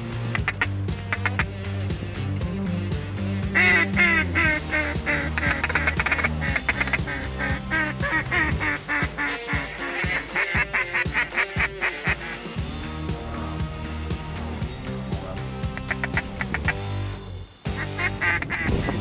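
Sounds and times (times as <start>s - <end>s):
background music: 0.0s - 19.0s
duck call quacks: 0.3s - 1.8s, 3.4s - 12.6s, 15.6s - 17.0s, 17.7s - 19.0s.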